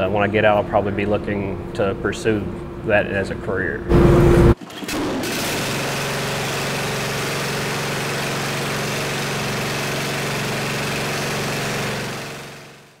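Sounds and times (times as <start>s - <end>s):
riding mower engine running: 3.9s - 13.0s.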